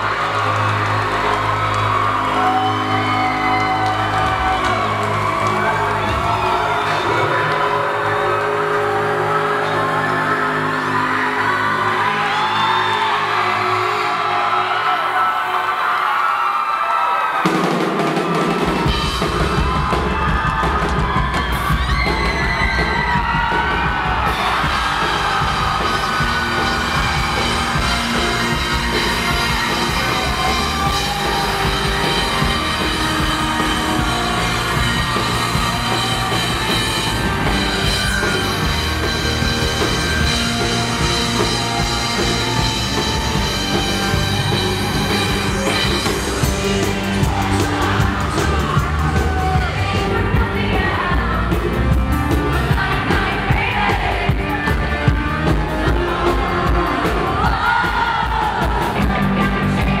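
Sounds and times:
drums: 0.0 - 60.0
keyboards: 17.3 - 60.0
woman singing lead: 44.0 - 60.0.

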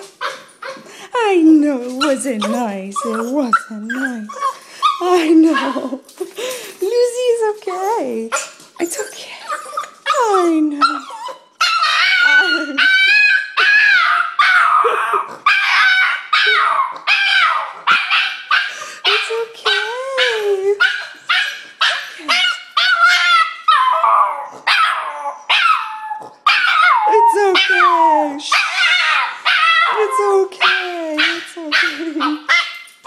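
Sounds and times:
dog howling and yipping: 9.6 - 33.0.

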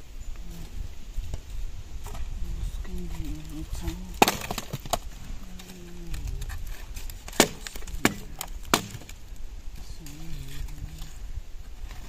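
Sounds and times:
blade chopping wood: 3.9 - 5.8, 7.0 - 9.2.

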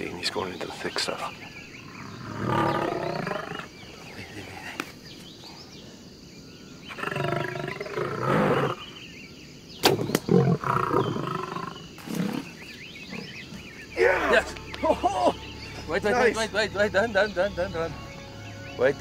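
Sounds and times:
lion growling: 1.8 - 3.8, 6.9 - 8.9, 10.2 - 14.6
bow shot crack: 9.8 - 10.3.

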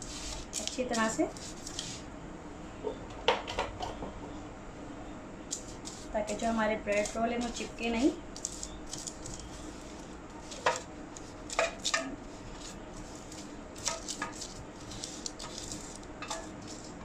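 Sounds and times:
pastry brush brushing: 0.0 - 2.0, 5.6 - 17.0.

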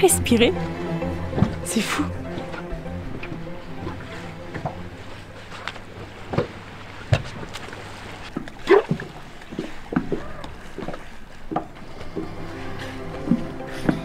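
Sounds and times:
dolphins puffing from blowholes: 11.7 - 14.0.

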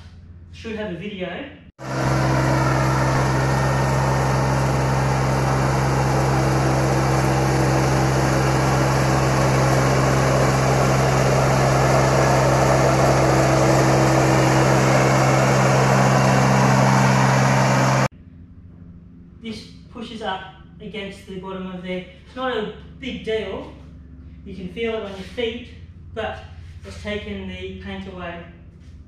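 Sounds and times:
ride-on mower engine droning: 1.8 - 19.4.

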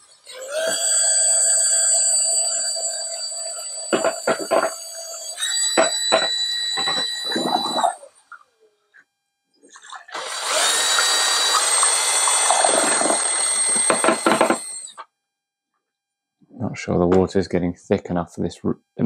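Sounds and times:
power drill motor whining: 0.0 - 8.7, 10.2 - 15.0.

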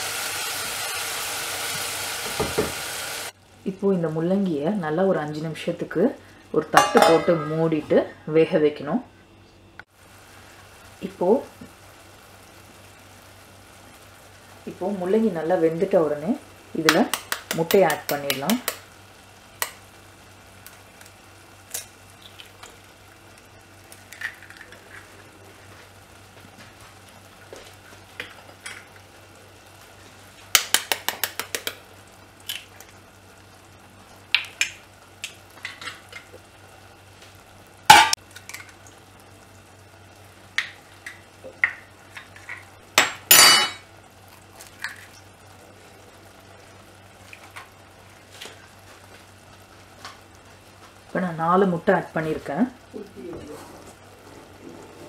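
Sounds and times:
eggs cracked on pot rim: 16.9 - 18.8, 23.9 - 25.1, 30.6 - 32.9, 34.3 - 36.4, 44.6 - 45.2.

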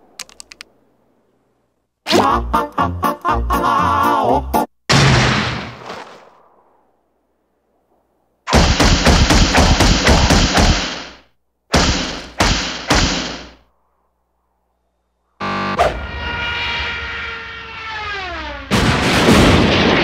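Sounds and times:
cartoon thuds: 4.9 - 6.2, 8.5 - 13.6.

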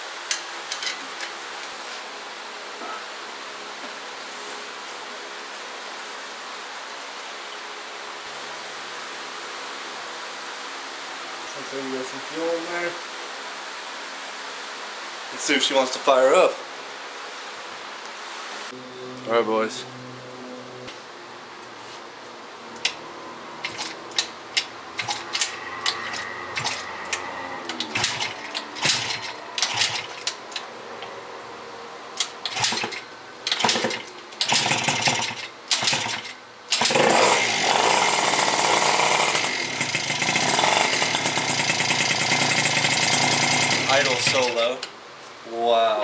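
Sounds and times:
scooter engine kick-starting: 23.6 - 30.4, 32.2 - 44.6
engine sputtering: 23.6 - 30.6, 32.2 - 44.6
two-stroke engine idling: 27.9 - 30.4, 32.4 - 44.6.

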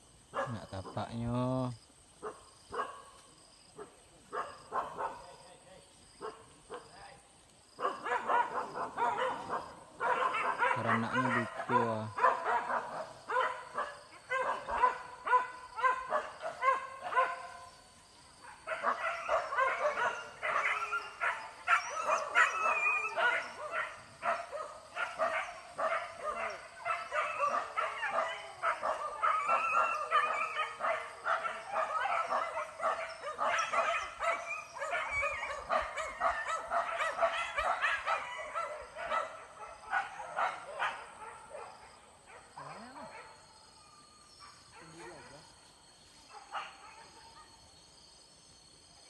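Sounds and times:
dogs yelping and baying: 7.8 - 17.7, 18.4 - 45.3.

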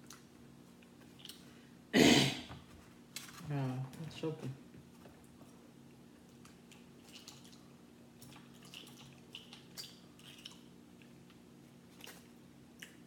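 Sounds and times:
chewing with wet smacks: 0.0 - 1.5, 6.2 - 13.0.

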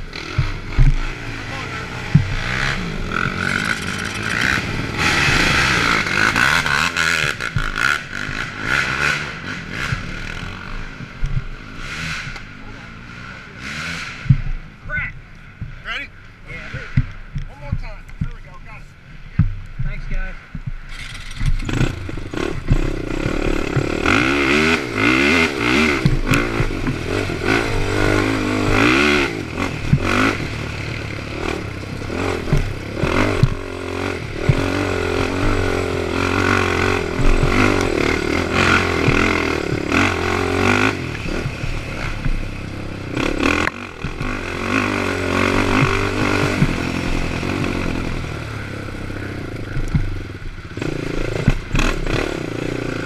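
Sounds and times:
machine rattling over bumps: 0.0 - 10.8, 20.8 - 52.4
atv engine revving: 0.0 - 53.0.

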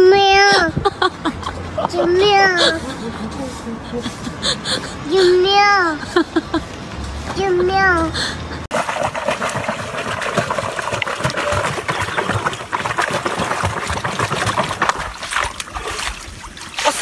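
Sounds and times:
stream water splashing: 8.7 - 17.0.

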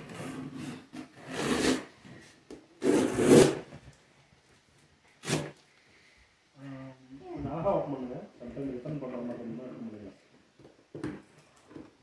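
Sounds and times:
cardboard box tearing open: 2.8 - 3.6.

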